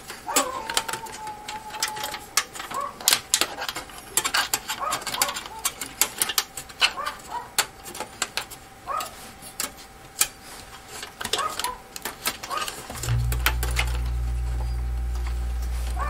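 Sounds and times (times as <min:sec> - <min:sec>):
clicks and rattles of computer case: 0:00.2 - 0:08.6
dog barking: 0:02.7 - 0:03.1, 0:04.8 - 0:05.7, 0:06.9 - 0:07.6, 0:08.8 - 0:09.2, 0:11.4 - 0:11.8.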